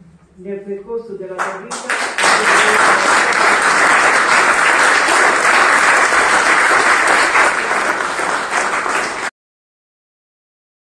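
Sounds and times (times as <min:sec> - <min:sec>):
audience applauding: 0:01.7 - 0:09.3.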